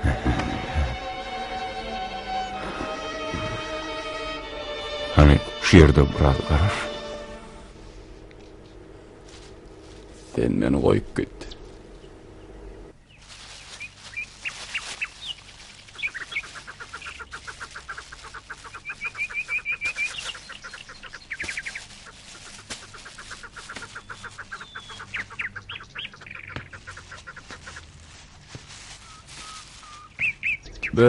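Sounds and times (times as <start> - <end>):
bird clucking runs: 11.2 - 31.0
high bird chirps: 11.5 - 27.8, 28.9 - 31.0.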